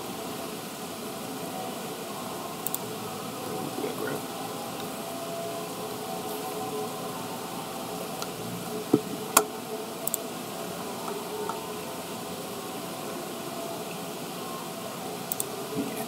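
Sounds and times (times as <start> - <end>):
steady hiss: 0.0 - 16.0
sharp clicks: 2.6 - 2.8, 9.4 - 10.2, 15.3 - 15.5
faint ticks: 9.4 - 10.2, 15.3 - 15.5.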